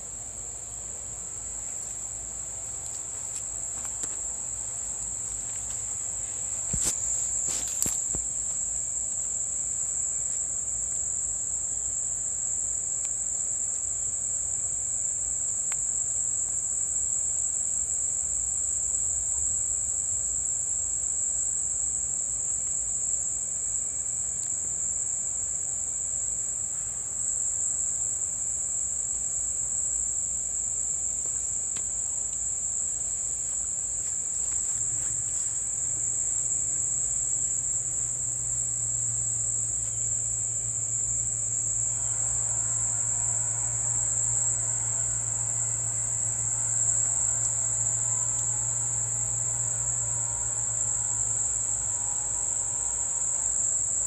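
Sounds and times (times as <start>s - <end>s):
crickets chirring: 0.0s - 54.0s.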